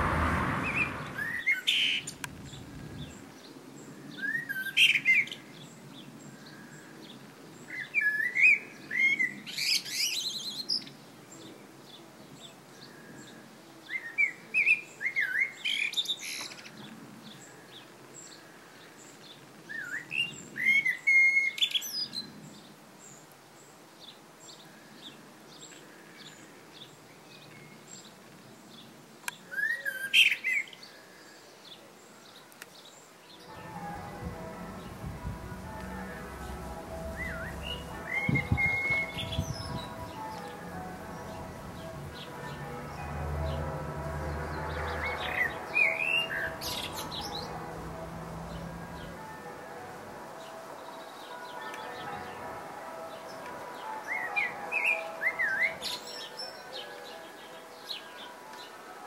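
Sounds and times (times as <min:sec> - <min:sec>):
blackbird singing: 0:35.6 - 0:43.6, 0:44.3 - 0:49.2, 0:54.0 - 0:58.3.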